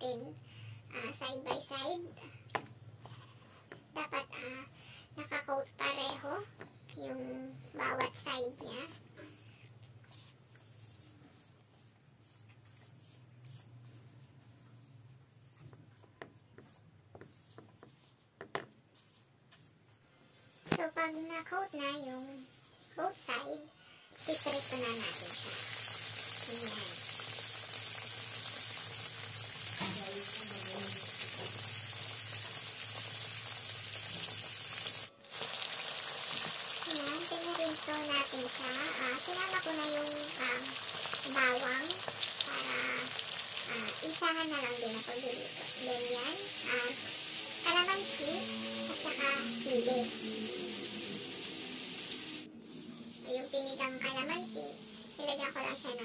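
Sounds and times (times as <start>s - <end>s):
fish frying in hot oil: 24.2s - 52.5s.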